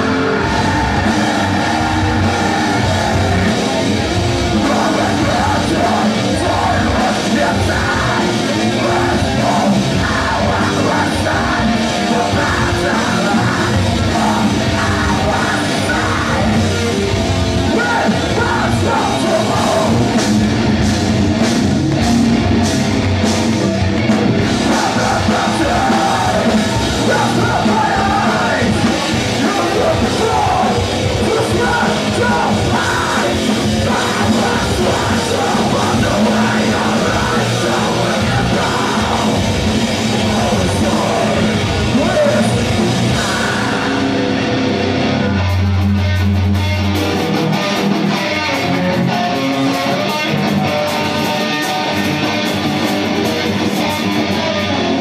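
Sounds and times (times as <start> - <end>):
screamed vocals: 0.0 - 16.8, 24.6 - 45.4
bass guitar: 0.0 - 55.0
distorted electric guitars: 0.0 - 55.0
drums: 0.0 - 55.0.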